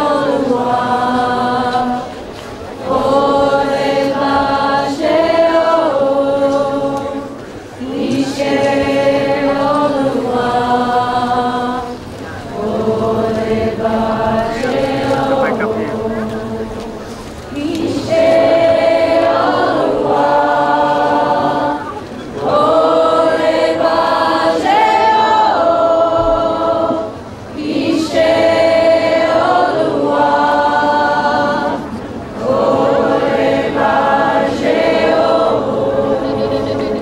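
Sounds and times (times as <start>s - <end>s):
choir singing: 0.0s - 37.0s.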